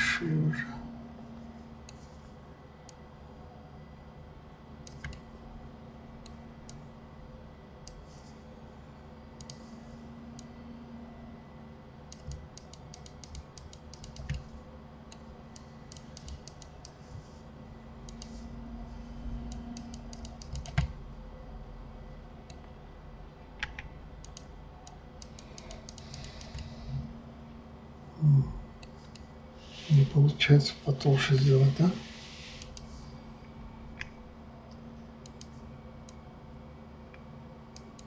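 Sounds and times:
faint steady hum: 0:00.0 - 0:38.0
mouse and keyboard clicking: 0:04.8 - 0:05.3, 0:12.1 - 0:14.5, 0:15.1 - 0:17.0, 0:18.1 - 0:18.4, 0:19.4 - 0:20.9, 0:23.6 - 0:26.7, 0:32.6 - 0:32.9, 0:35.2 - 0:36.2.

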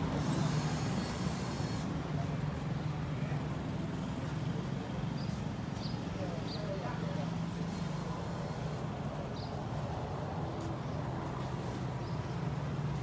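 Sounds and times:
low mechanical hum: 0:00.0 - 0:04.2.

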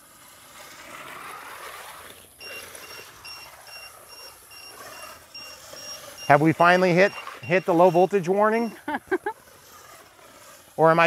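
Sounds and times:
electric motor whirring: 0:00.0 - 0:11.0
short high beeps: 0:02.4 - 0:09.0.

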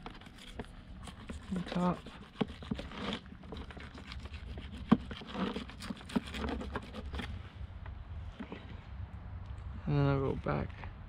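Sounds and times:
knife scraping through fish scales: 0:00.0 - 0:07.4.

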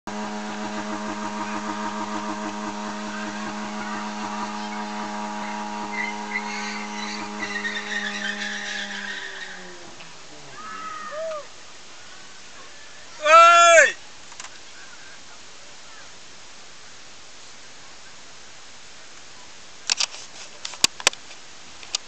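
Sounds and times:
car engine revving high: 0:00.1 - 0:10.6
tyres squealing: 0:01.4 - 0:11.5.

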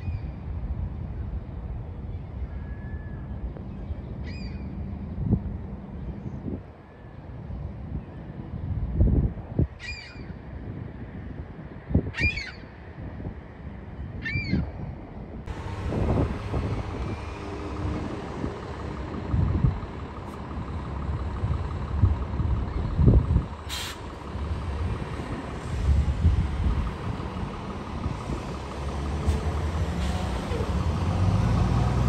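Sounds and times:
bus engine rumble: 0:00.0 - 0:32.0
bird calling: 0:09.8 - 0:10.4, 0:12.2 - 0:12.7
air brakes hissing: 0:23.7 - 0:24.2, 0:29.2 - 0:30.6.

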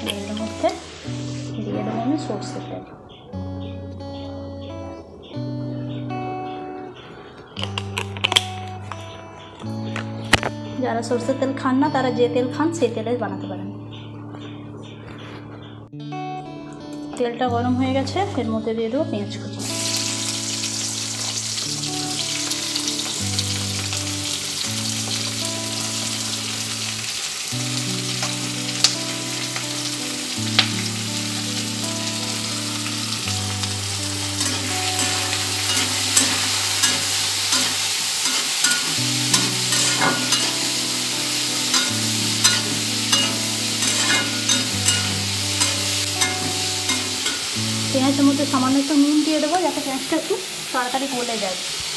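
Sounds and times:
onions sizzling in hot oil: 0:00.0 - 0:01.6, 0:19.6 - 0:51.9
soft background music: 0:00.0 - 0:51.6
metal spatula scraping pan: 0:34.4 - 0:40.8, 0:41.6 - 0:47.6.

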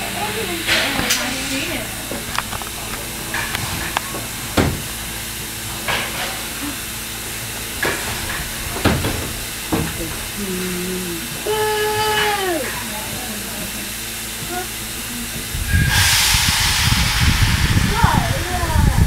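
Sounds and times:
steam locomotive hissing and running: 0:00.0 - 0:19.0
sharp knocks: 0:03.3 - 0:05.0, 0:07.8 - 0:10.3.

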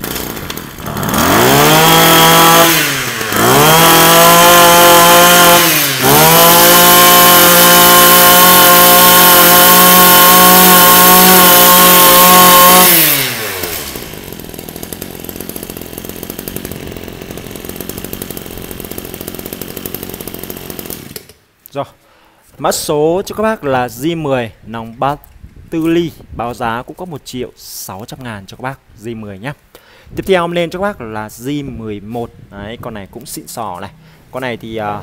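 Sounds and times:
brush cutter engine revving: 0:00.0 - 0:21.4.

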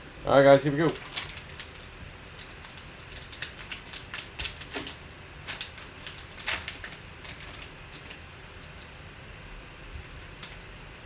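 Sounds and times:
foil card pack crinkling and tearing: 0:00.6 - 0:08.9.

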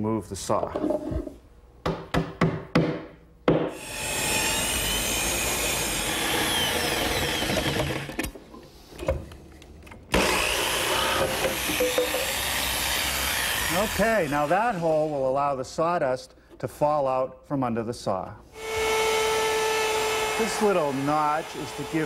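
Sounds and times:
jigsaw cutting plywood: 0:03.7 - 0:08.2, 0:10.1 - 0:14.5.

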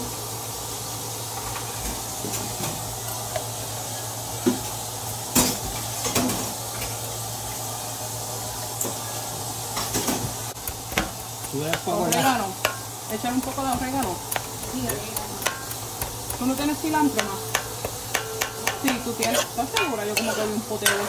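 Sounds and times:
metal spoon scraping plastic tub: 0:18.9 - 0:19.6.

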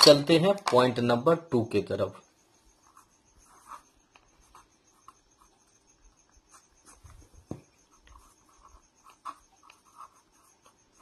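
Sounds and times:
pen scratching on paper: 0:02.6 - 0:11.0
pen taps: 0:07.4 - 0:08.2.

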